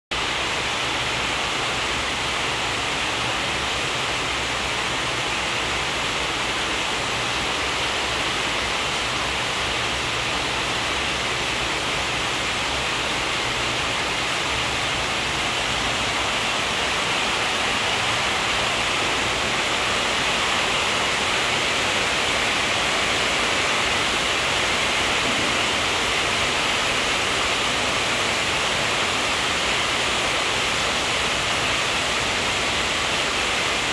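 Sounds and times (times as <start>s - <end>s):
steady hiss: 0.2s - 33.9s.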